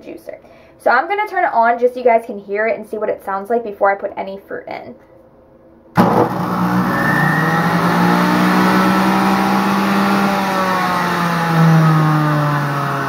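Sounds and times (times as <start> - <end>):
juicer motor whining: 6.0 - 13.0.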